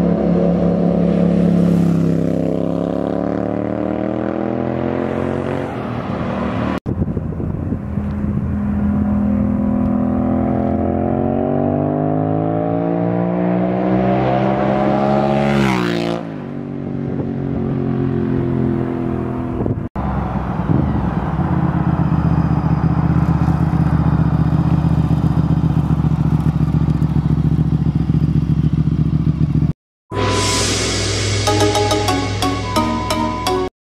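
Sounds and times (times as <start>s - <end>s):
motorcycle passing at speed: 0.0s - 29.7s
motorcycle engine idling lumpily: 22.2s - 29.7s.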